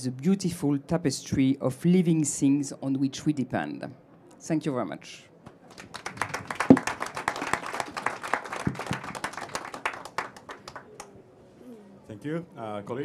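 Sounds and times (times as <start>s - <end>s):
audience applauding: 5.6s - 11.1s.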